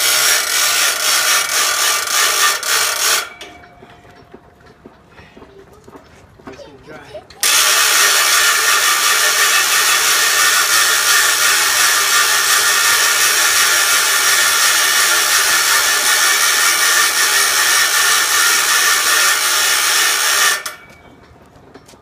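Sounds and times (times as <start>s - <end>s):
generator mechanical whir: 7.3s - 22.0s.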